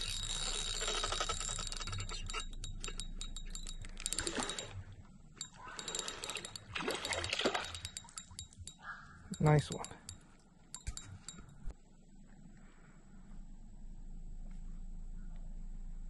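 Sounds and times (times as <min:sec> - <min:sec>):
fishing reel clicking: 0:00.0 - 0:04.8, 0:05.4 - 0:10.2.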